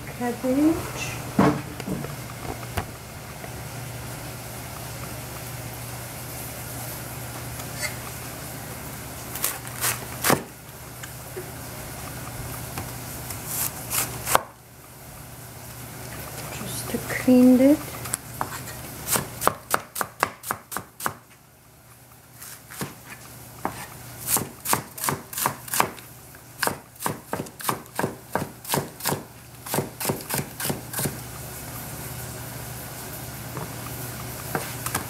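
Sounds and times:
cleaver chopping on cutting board: 19.1 - 21.2, 22.8 - 26.0, 26.6 - 31.2.

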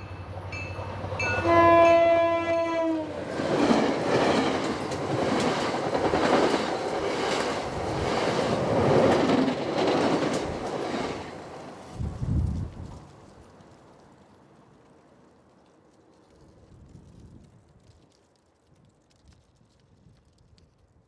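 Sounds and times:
wheels clacking over rail joints: 0.0 - 11.9
train coaches rumbling past: 0.0 - 13.7
train horn blast: 1.2 - 3.2.

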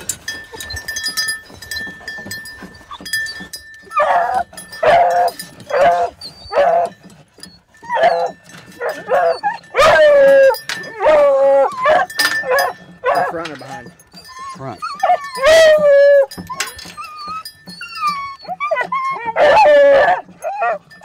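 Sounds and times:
dogs barking and howling: 3.8 - 21.0.

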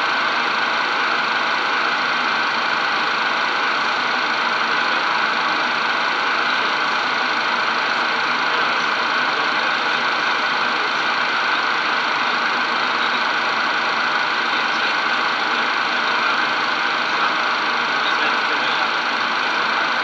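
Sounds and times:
jet cockpit engine and airflow hiss: 0.0 - 20.0.

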